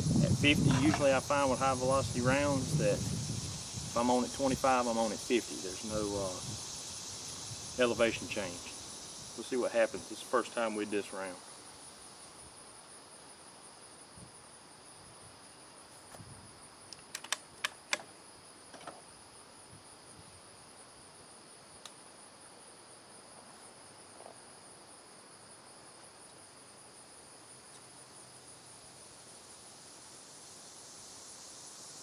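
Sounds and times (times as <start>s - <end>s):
insects trilling: 0.0s - 32.0s
sharp clicks: 16.9s - 18.1s.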